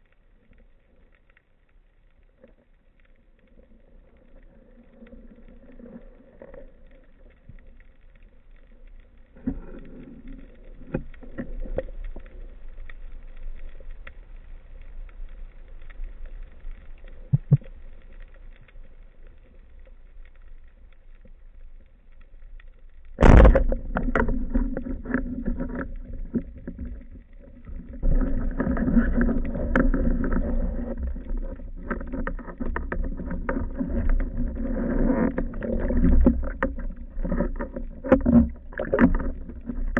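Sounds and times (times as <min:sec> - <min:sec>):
faint water noise: 0:00.0 - 0:39.9
rushing water: 0:23.2 - 0:39.9.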